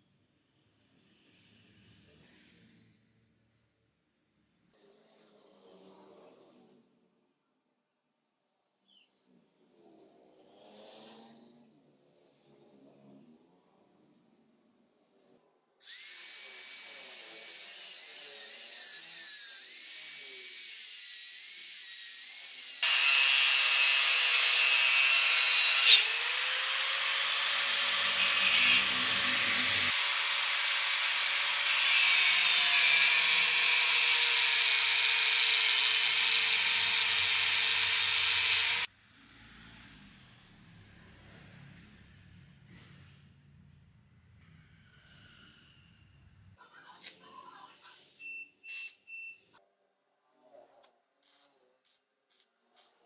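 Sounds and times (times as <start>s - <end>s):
grinder cutting steel: 15.8s - 38.9s, 50.7s - 53.0s.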